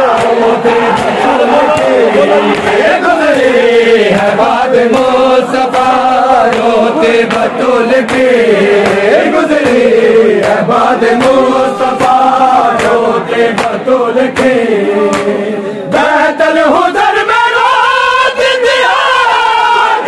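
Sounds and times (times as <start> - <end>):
chest-beating slaps: 0.0 - 15.4
men chanting together: 0.0 - 20.0.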